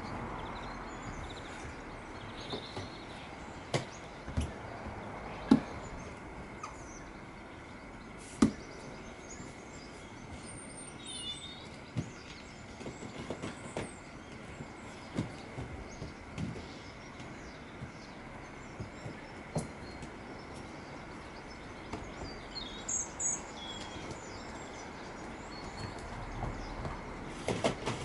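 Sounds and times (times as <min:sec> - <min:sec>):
steady background hiss: 0:00.0 - 0:28.0
faint bird chirps: 0:05.3 - 0:26.8.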